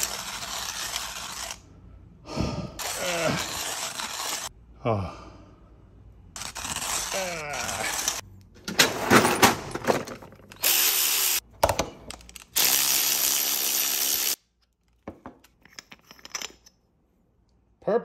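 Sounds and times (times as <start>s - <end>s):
metal tools clattering: 8.6s - 10.6s.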